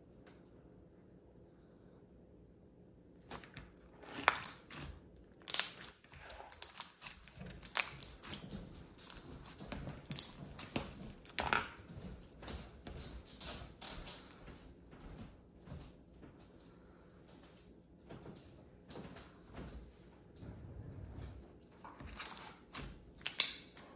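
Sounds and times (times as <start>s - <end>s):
slime crackling and popping: 3.2s - 12.4s, 21.9s - 23.9s.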